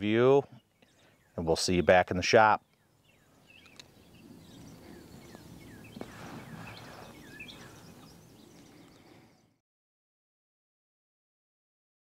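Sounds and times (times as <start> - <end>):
birds chirping: 0.0 - 9.6
low steady background hush: 0.0 - 9.6.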